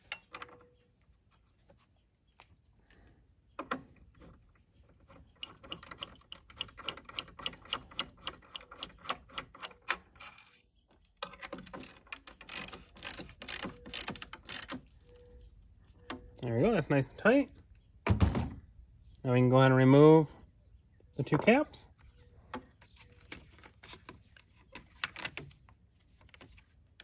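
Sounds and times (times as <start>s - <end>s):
ratchet clicking: 11.3s - 14.8s.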